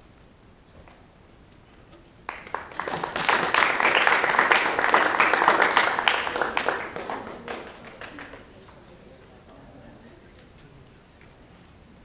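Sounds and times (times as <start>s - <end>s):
audience applauding: 2.3s - 8.7s.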